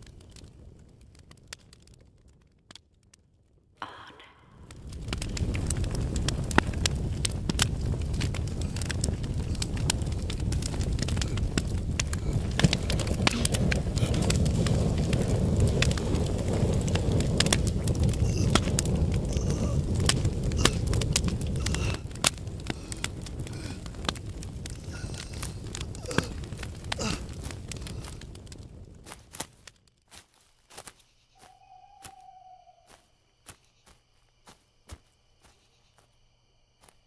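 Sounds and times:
campfire crackling and popping: 0.0 - 3.8, 4.5 - 35.6
fire low rush: 4.4 - 29.7.

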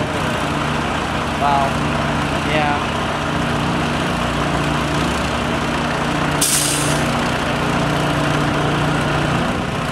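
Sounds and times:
engine running steadily: 0.0 - 9.9
short sharp hiss: 6.4 - 7.0.

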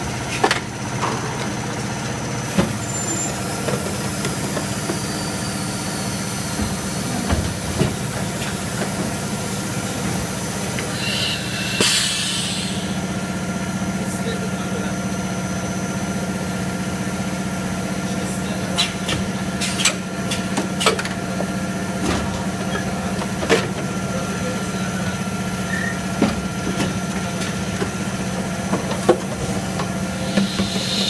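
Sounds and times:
machine humming: 1.7 - 14.5.

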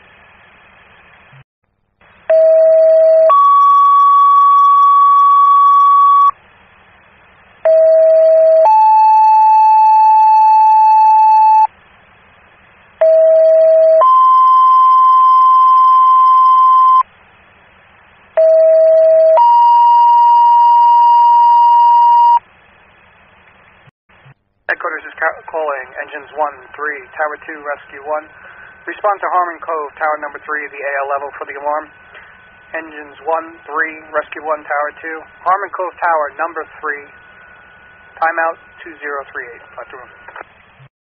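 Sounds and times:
two-tone radio paging tones: 2.3 - 6.4, 13.0 - 17.1, 18.4 - 22.4
radio hiss: 24.2 - 40.9.

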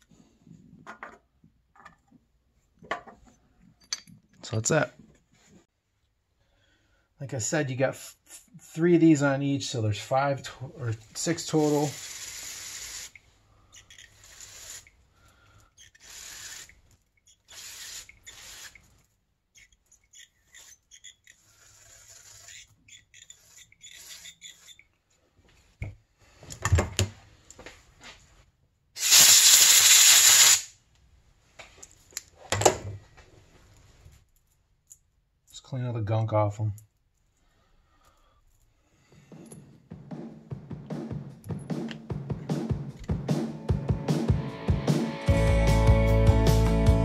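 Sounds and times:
small parts being handled: 13.6 - 26.7
spray can hissing: 29.0 - 30.7.

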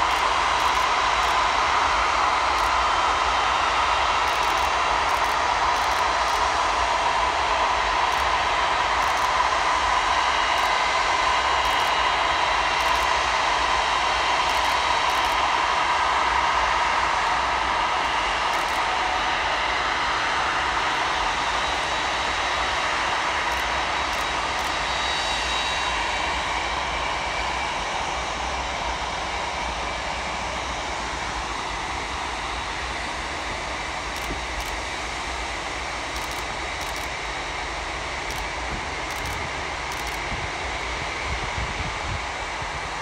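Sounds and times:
jet engines rumbling and whining: 0.0 - 43.0.

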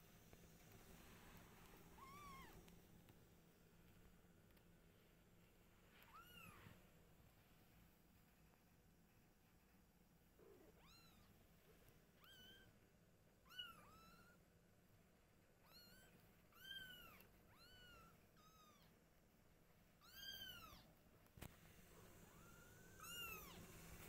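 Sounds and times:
kitten meowing: 2.0 - 2.6, 22.4 - 23.6.

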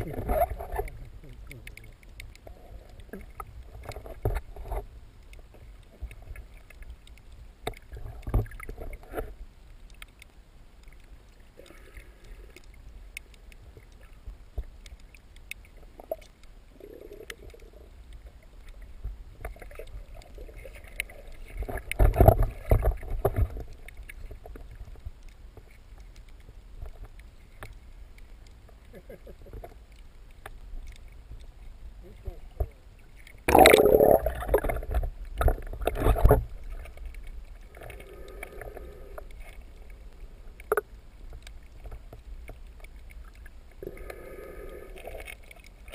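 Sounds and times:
muffled underwater water sloshing: 0.0 - 45.9
small clicks and knocks: 0.4 - 11.7, 12.5 - 16.6.

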